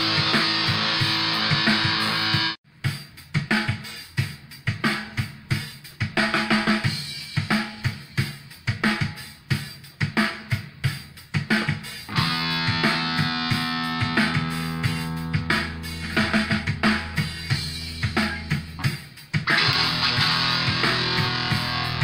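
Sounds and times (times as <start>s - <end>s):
rock guitar band: 0.0s - 2.6s, 11.6s - 22.0s
drum kit steady beat: 0.0s - 22.0s.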